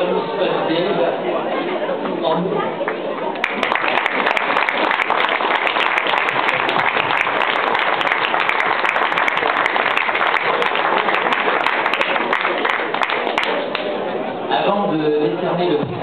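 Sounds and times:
crowd applauding: 0:02.8 - 0:14.0.

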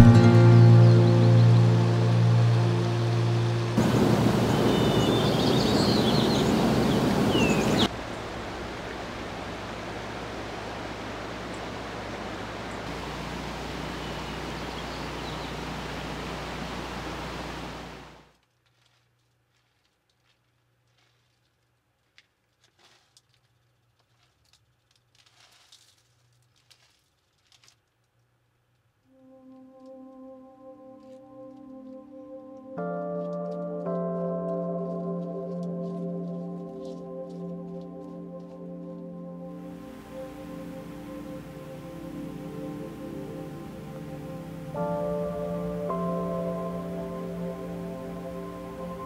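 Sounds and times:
soft music with sustained tones: 0:00.0 - 0:07.9, 0:29.1 - 0:49.0
bird chirps: 0:00.0 - 0:08.2, 0:13.2 - 0:17.8
steady hiss: 0:00.0 - 0:18.2, 0:35.9 - 0:49.0
rushing outdoor ambience: 0:00.0 - 0:18.3, 0:34.2 - 0:49.0
cheese and toppings sprinkled on salad: 0:18.7 - 0:28.0.

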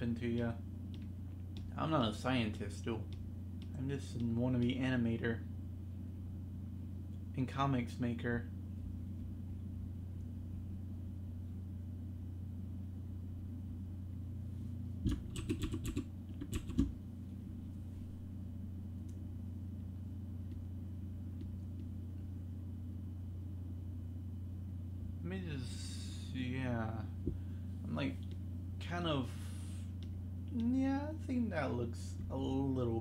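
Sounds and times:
steady low hum: 0:00.0 - 0:33.0
computer keyboard clicks: 0:15.1 - 0:16.9.

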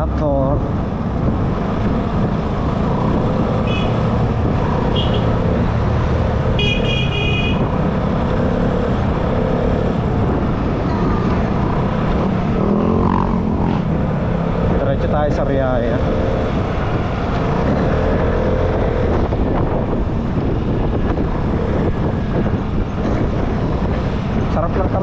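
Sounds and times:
road noise: 0:00.0 - 0:25.0
wind noise: 0:00.0 - 0:25.0
vehicle horn beeps: 0:04.9 - 0:05.3, 0:06.6 - 0:07.7.

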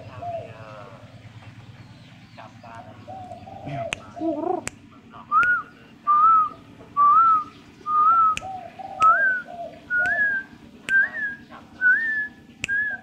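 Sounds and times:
dove cooing: 0:00.0 - 0:13.0
sharp clicks: 0:12.6 - 0:12.9.

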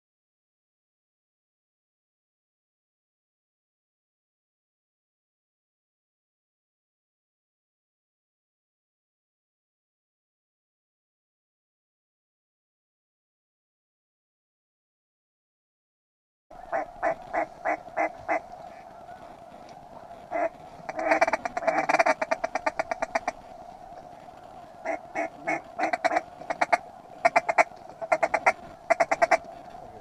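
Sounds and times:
duck quacking: 0:16.6 - 0:23.4, 0:24.8 - 0:30.0.

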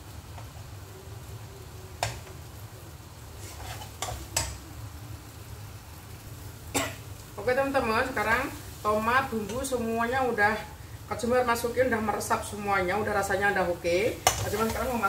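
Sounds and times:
faint sizzle: 0:00.0 - 0:15.0
spatula stirring paste in a pan: 0:03.4 - 0:04.5.

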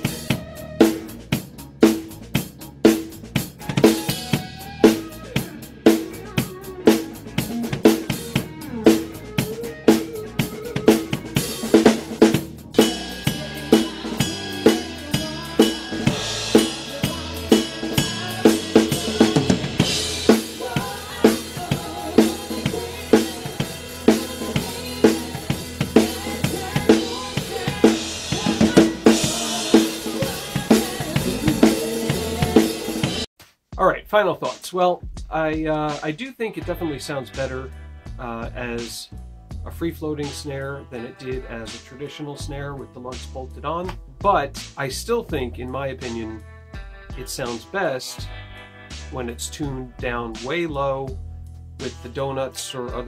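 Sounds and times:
drum kit groove: 0:00.0 - 0:53.0
cymbals: 0:03.6 - 0:33.3.

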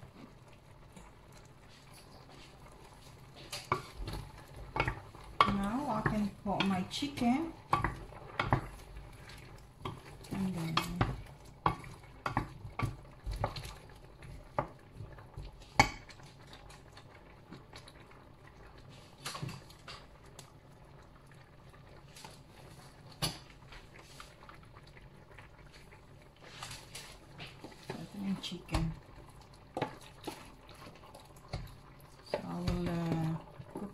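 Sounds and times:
low simmer: 0:00.0 - 0:33.9
wooden spoon scraping a pot: 0:01.6 - 0:16.9, 0:25.6 - 0:33.9.

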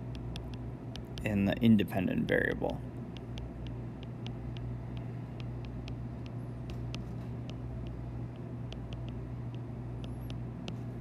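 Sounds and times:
steady low hum: 0:00.0 - 0:11.0
stylus ticking on glass screen: 0:03.2 - 0:10.8.

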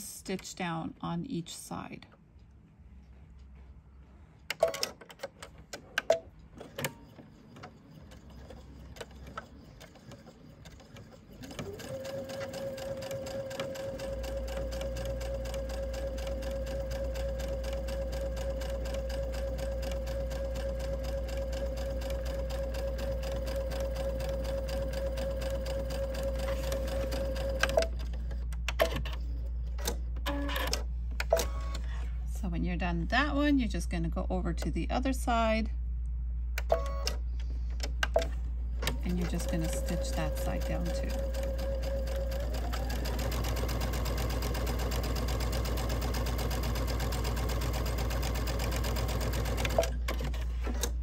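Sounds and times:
sewing machine running: 0:07.5 - 0:27.9, 0:38.9 - 0:50.6
sewing machine clicks: 0:38.0 - 0:51.0.

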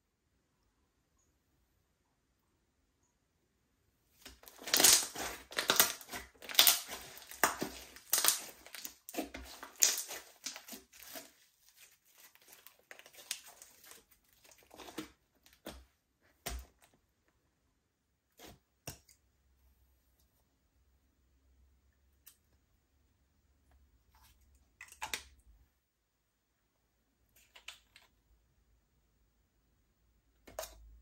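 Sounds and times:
slime crackling and popping: 0:04.2 - 0:15.7.

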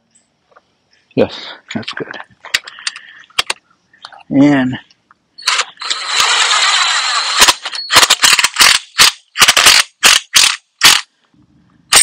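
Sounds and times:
cordless drill driving screw: 0:05.5 - 0:08.8.

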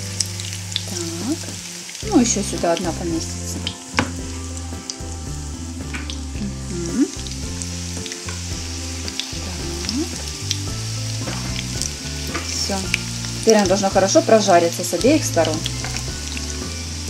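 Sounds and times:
cutlets sizzling in hot oil: 0:00.0 - 0:17.0.

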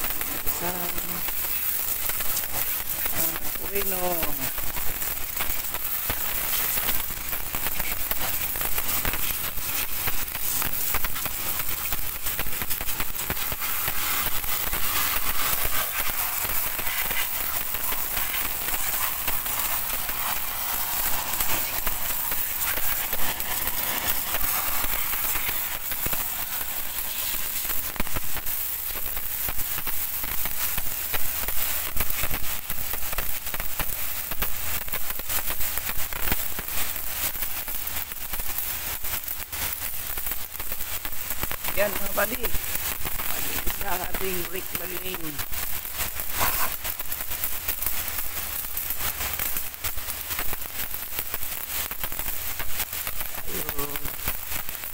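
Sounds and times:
water spatter crackling: 0:00.0 - 0:32.3, 0:40.9 - 0:48.4
pressure washer spray hissing: 0:00.0 - 0:32.4, 0:41.2 - 0:49.4.

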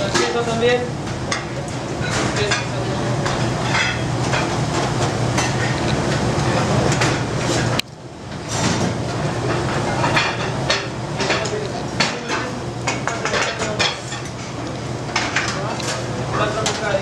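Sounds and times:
metal pans clattering: 0:01.3 - 0:04.5, 0:08.5 - 0:17.0.

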